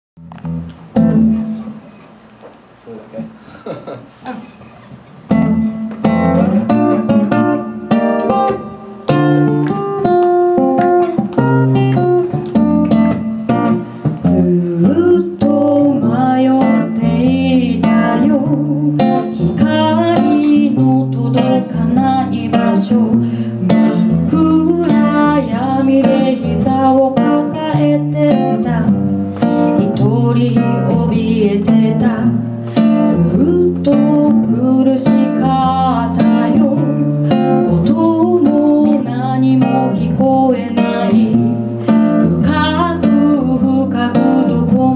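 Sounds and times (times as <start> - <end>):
acoustic guitar playing: 0.2 - 2.3, 3.2 - 44.9
woman singing: 14.2 - 44.9.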